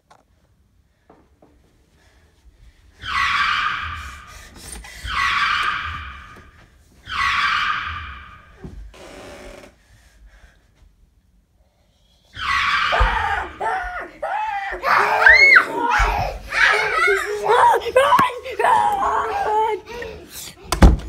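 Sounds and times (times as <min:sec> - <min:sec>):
high-pitched screams: 0:03.0 - 0:08.6, 0:12.2 - 0:19.8.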